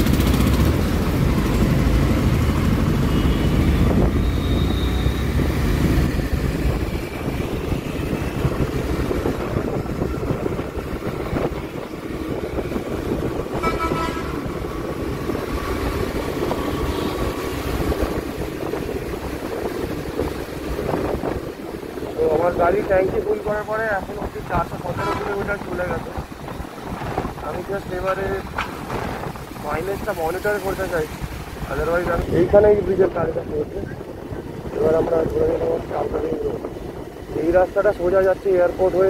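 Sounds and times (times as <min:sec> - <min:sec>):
motorcycle engine running: 0:00.0 - 0:03.4
road noise: 0:00.0 - 0:39.0
vehicle horn: 0:04.3 - 0:05.3, 0:13.5 - 0:14.5, 0:25.0 - 0:25.5.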